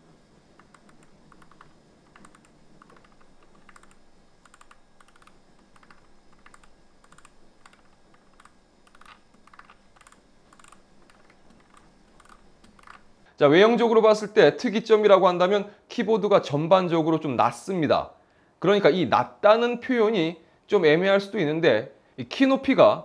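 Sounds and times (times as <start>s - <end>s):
keyboard wheel clicking ticks: 0.6s - 13.0s.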